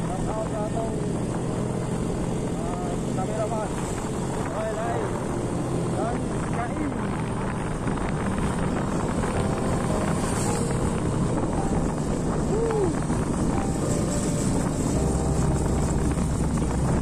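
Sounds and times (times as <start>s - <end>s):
motorcycle engine running: 0.0s - 17.0s
wind buffeting microphone: 0.0s - 17.0s.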